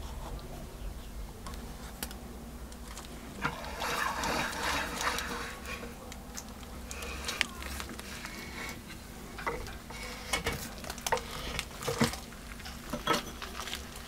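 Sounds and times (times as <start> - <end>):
vise scraping and rattling: 3.4 - 6.0.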